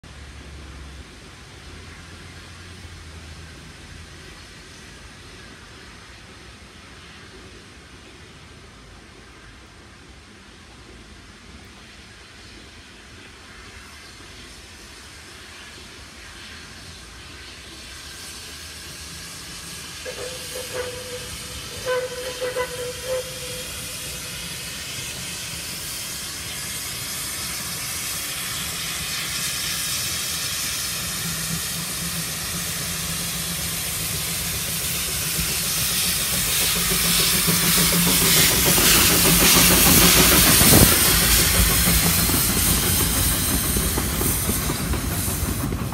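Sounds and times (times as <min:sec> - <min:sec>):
hiss of steam: 0:00.1 - 0:45.9
steam locomotive passing: 0:00.1 - 0:45.9
train whistle toots: 0:20.0 - 0:24.4.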